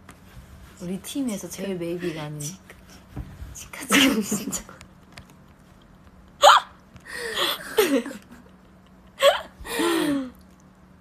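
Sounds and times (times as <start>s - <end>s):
women laughing: 7.2s - 10.1s.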